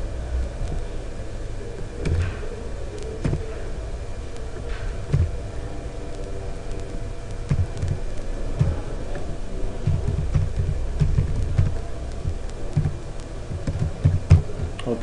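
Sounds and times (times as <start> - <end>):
steady low hum: 0.0 - 15.0
keyboard keystrokes: 6.7 - 14.9.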